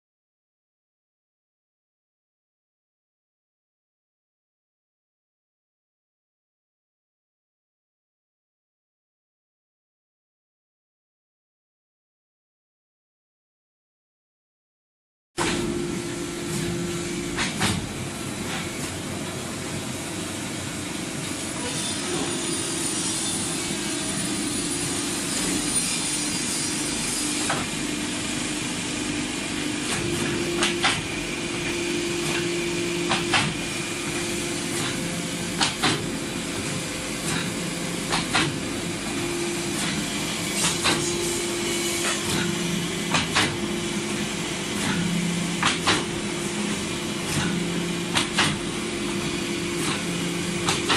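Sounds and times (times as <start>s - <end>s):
woodworking machinery humming: 15.4s - 50.9s
sharp knocks of boards: 45.6s - 46.1s.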